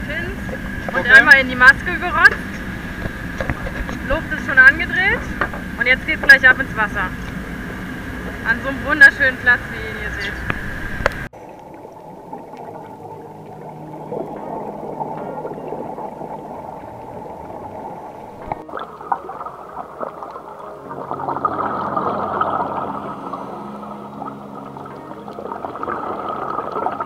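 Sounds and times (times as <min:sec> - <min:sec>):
muffled underwater rush: 0:00.0 - 0:27.0
gurgling exhaled bubbles: 0:10.4 - 0:27.0.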